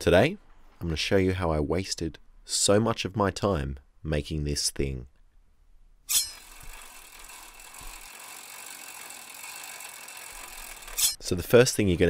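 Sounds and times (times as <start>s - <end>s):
bicycle freewheel ratcheting: 6.1s - 11.2s.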